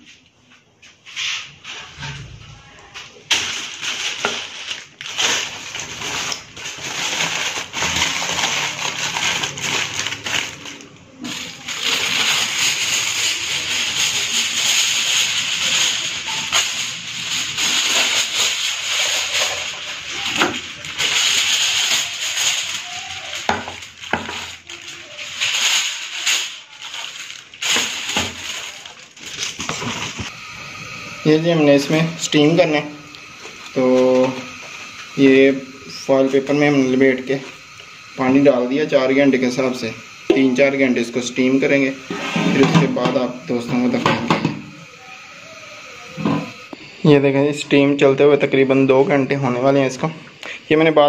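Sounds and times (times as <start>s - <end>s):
aluminium foil crinkling: 1.2s - 46.8s.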